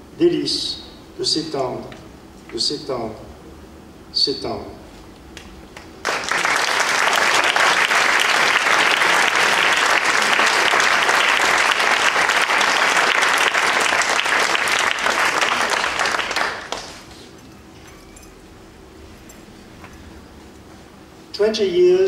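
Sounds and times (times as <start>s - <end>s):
audience applause: 6.0s - 17.1s.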